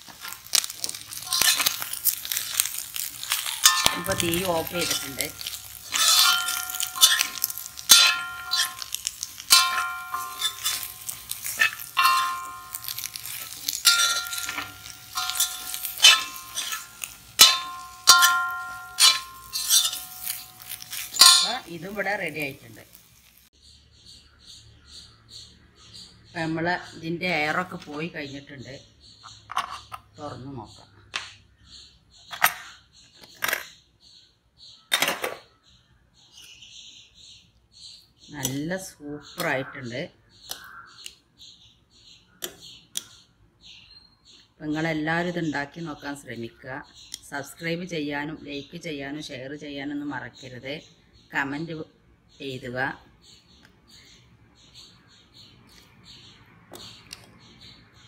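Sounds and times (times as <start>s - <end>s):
metal spoon clanking in metal pot: 0.6s - 22.0s.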